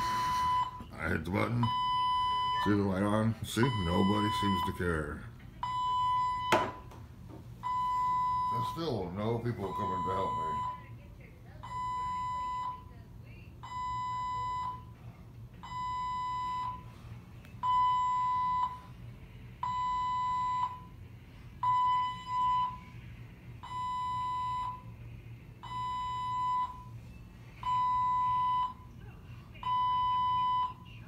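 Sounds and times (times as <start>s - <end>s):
alarm beeping: 0.0s - 6.9s, 7.6s - 9.0s, 9.6s - 10.9s, 19.6s - 21.0s, 21.6s - 22.9s, 23.6s - 24.9s, 25.6s - 27.0s, 27.6s - 28.9s, 29.6s - 30.8s.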